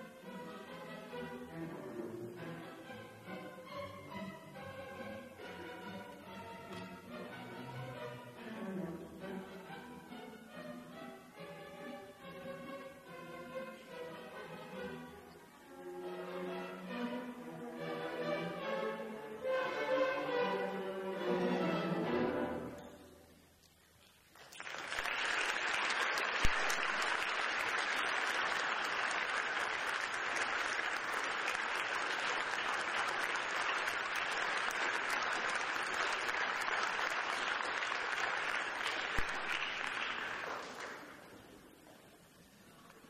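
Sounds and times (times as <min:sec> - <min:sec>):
audience applauding: 0:24.3 - 0:41.3.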